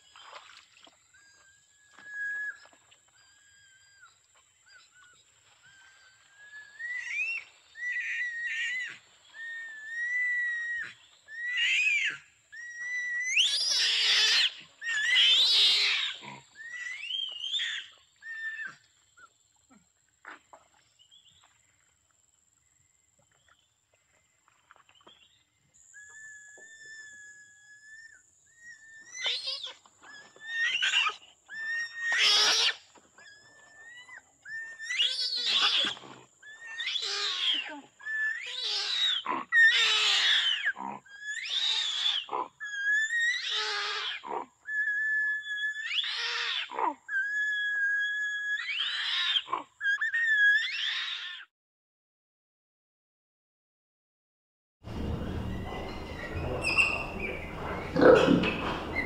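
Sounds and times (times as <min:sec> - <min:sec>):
orangutan harsh squeals: 0:06.4 - 0:18.8, 0:25.9 - 0:51.5, 0:54.9 - 0:59.0
orangutan whistle-like squeaks: 0:06.7 - 0:16.0, 0:26.0 - 0:51.5, 0:54.9 - 0:59.0.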